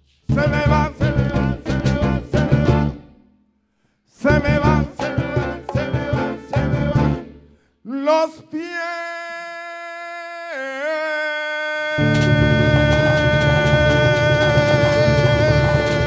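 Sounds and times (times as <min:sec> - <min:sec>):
band with hand percussion: 0:00.0 - 0:03.2, 0:04.2 - 0:07.3, 0:12.0 - 0:16.0
man singing: 0:00.2 - 0:03.0, 0:04.1 - 0:16.0.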